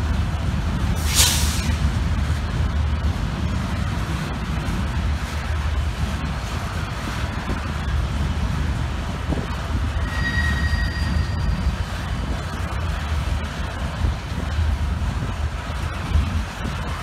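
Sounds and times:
train wheels rumbling over rails: 0.0s - 17.0s
high-pitched wheel squeal: 9.9s - 12.3s.

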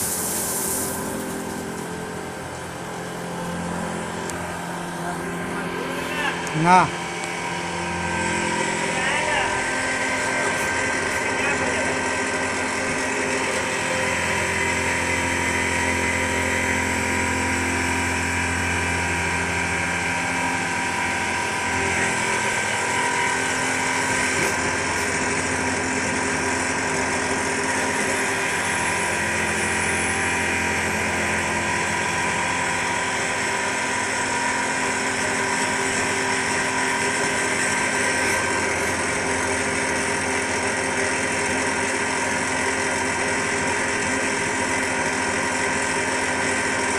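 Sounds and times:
milling machine cutting metal: 0.0s - 46.9s.

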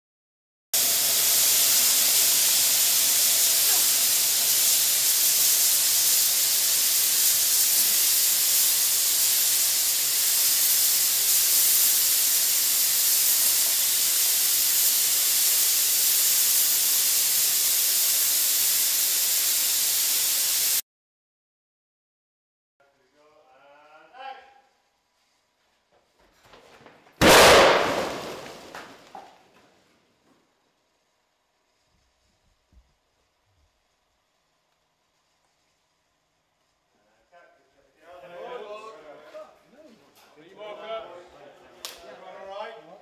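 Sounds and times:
loud steady static hiss: 0.8s - 20.8s, 30.0s - 38.4s.

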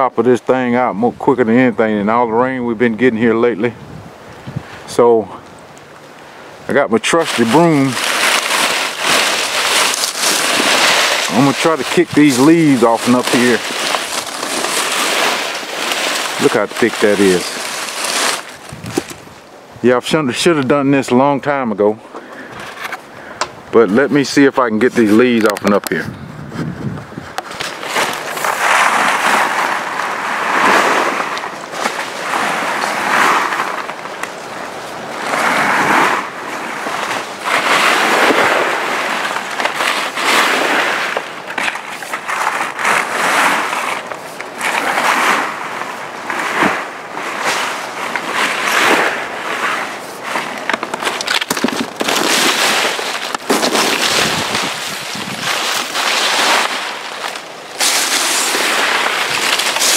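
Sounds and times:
broom sweeping dry leaves: 7.0s - 19.2s, 27.5s - 59.9s.

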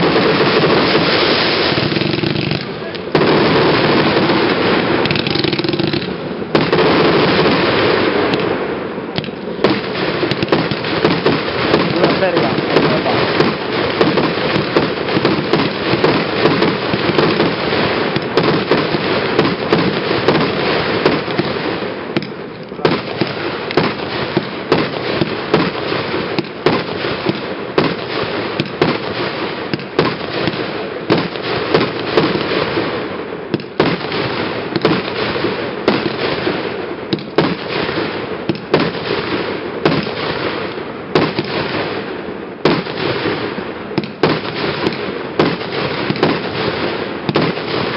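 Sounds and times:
fireworks barrage of rapid shots: 0.0s - 47.9s
fireworks crackling bursts: 0.0s - 47.9s.

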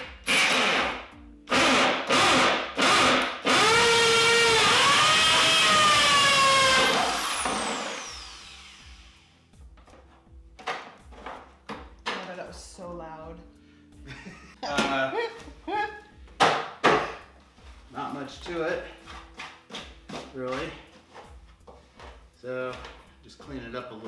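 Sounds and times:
electric drill cutting plastic: 0.0s - 9.3s.

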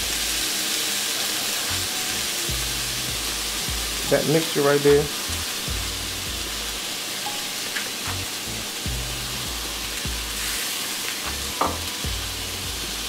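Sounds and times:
food sizzling in a skillet: 0.0s - 13.0s
background music with bass line: 1.7s - 6.9s, 8.0s - 10.6s, 11.2s - 13.0s.

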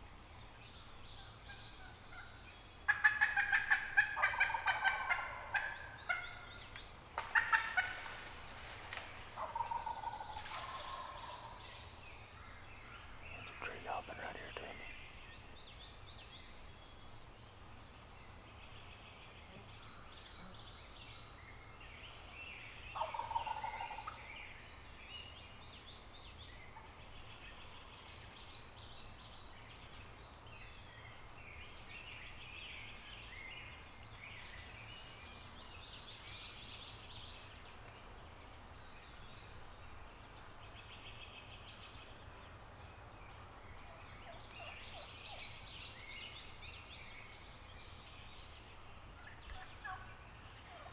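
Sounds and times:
turkey gobbling: 2.9s - 6.3s, 7.3s - 8.0s, 9.4s - 11.5s, 23.0s - 24.2s, 49.8s - 50.0s.

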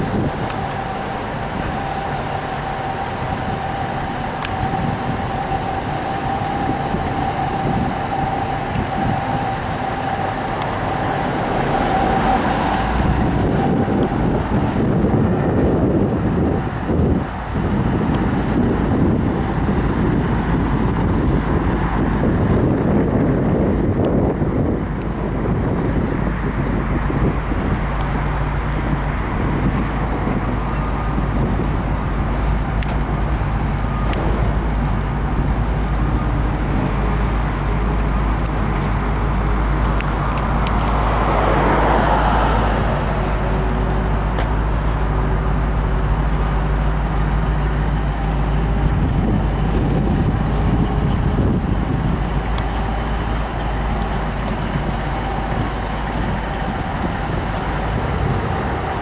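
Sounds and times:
car engine idling: 0.0s - 59.0s
wind rumbling on microphone: 0.0s - 59.0s.

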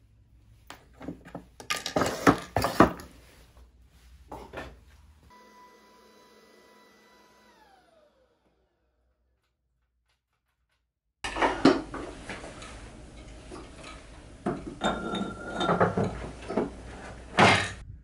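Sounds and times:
metal tools clinking on wood: 13.2s - 16.7s.

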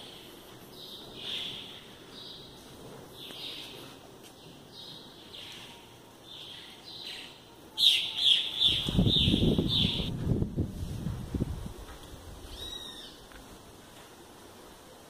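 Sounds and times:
bird chirps: 4.7s - 10.1s.

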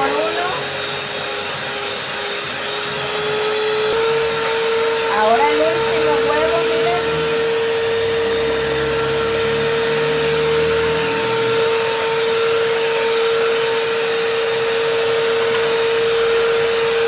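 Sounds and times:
electric mixer motor humming: 0.0s - 17.0s.

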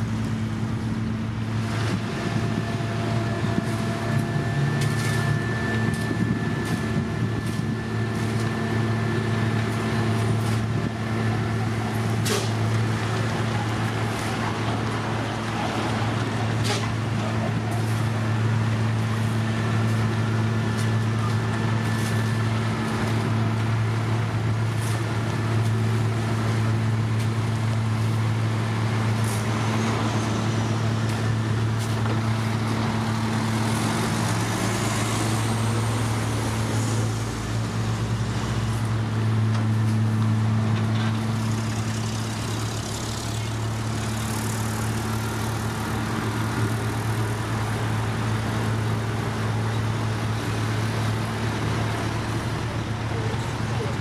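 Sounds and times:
diesel engines humming: 0.0s - 54.0s.

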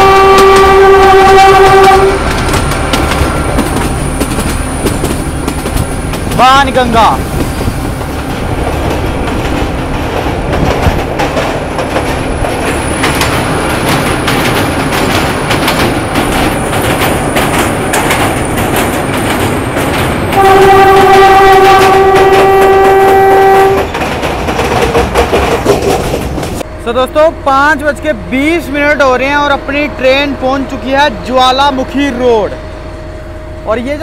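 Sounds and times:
locomotive horn blast: 0.0s - 2.4s, 20.3s - 23.9s
train wheels clattering over rails: 0.0s - 26.6s
diesel train running: 0.0s - 34.0s.

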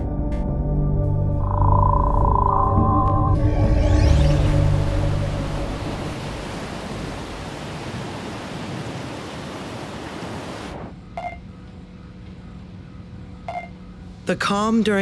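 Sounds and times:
low electronic hum: 0.6s - 7.4s
short beep: 1.4s - 3.8s
wind and heavy sea hiss: 5.4s - 11.0s.

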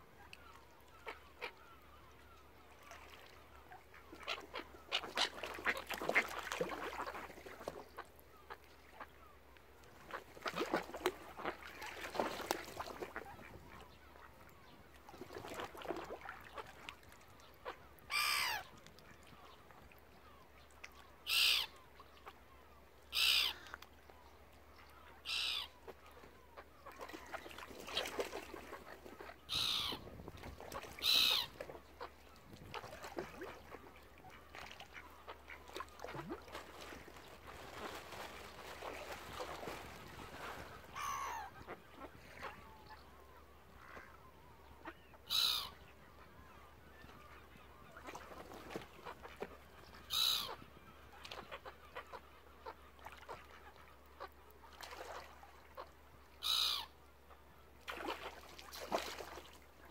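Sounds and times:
ducks quacking: 0.9s - 1.6s, 3.9s - 9.1s, 21.3s - 22.4s, 27.9s - 36.9s, 44.8s - 45.7s, 48.0s - 50.6s, 55.1s - 56.9s
loud harsh bird calls: 45.3s - 45.7s, 56.4s - 56.8s.

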